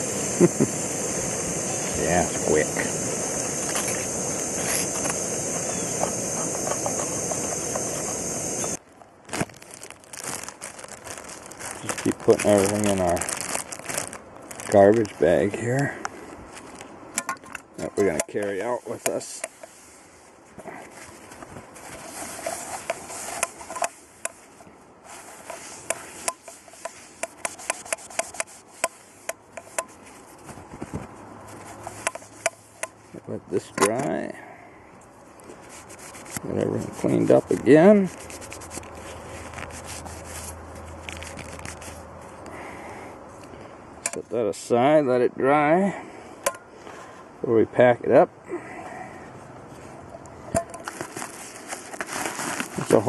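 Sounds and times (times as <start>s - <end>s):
gas burner running: 0.0s - 8.8s
water boiling: 0.0s - 8.8s.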